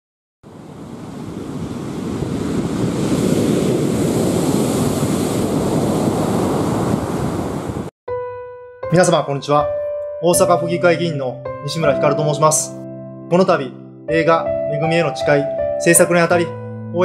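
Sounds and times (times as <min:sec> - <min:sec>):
surf breaking on beach: 0:00.5 - 0:07.9.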